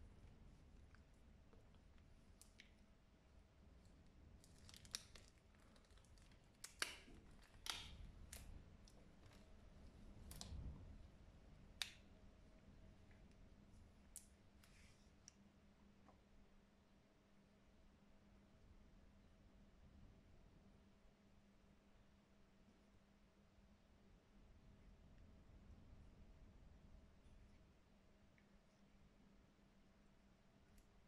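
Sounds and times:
low steady hum: 0.0 - 31.0
latex glove clicks and snaps: 4.6 - 9.4.

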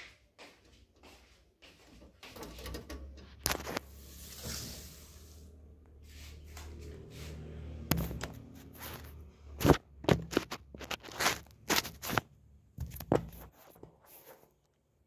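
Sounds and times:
handling rustling: 8.6 - 14.6.

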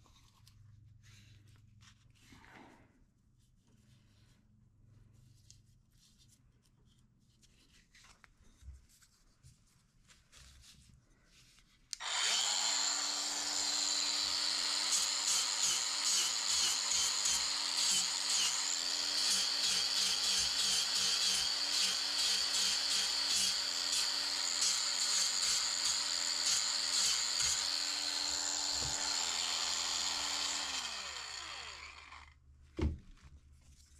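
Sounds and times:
quiet handling sounds: 0.0 - 12.0, 32.6 - 33.9
power tool whining: 12.0 - 32.4.

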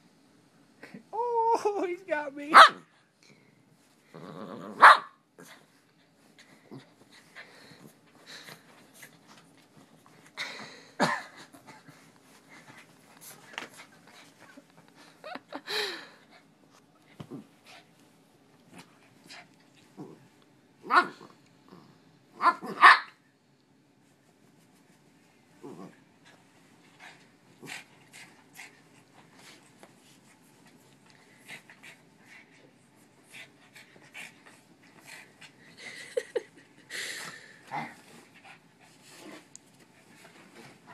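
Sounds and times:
dog barking and whimpering: 4.7 - 5.2, 22.4 - 23.2
small dog panting: 26.3 - 35.9, 37.2 - 40.9.

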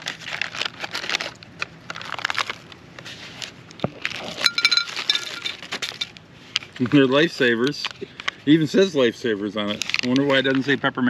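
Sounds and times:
plastic pouch crinkling: 0.0 - 6.1, 9.5 - 10.8
hard candies clattering on plate: 4.4 - 6.1.

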